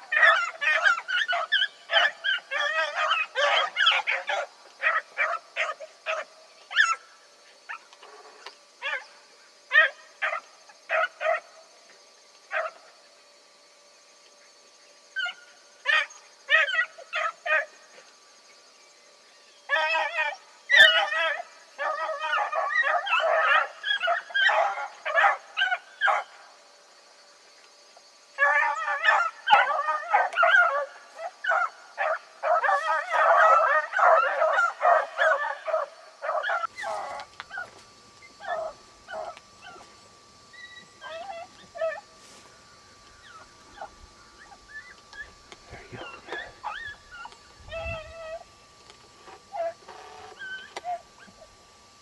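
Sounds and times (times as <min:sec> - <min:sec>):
hounds baying: 0:00.0 - 0:07.0, 0:15.2 - 0:17.8, 0:19.7 - 0:26.4, 0:28.4 - 0:39.9, 0:40.6 - 0:42.1, 0:43.2 - 0:48.5.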